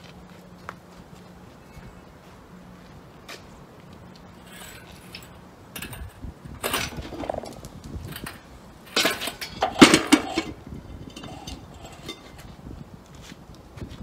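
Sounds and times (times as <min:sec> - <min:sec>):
metal chain clinking and creaking: 0:04.4 - 0:12.5.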